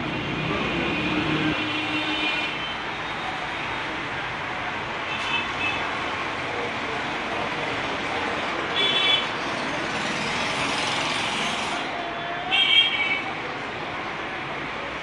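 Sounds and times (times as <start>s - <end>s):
noisy background din: 0.0s - 15.0s.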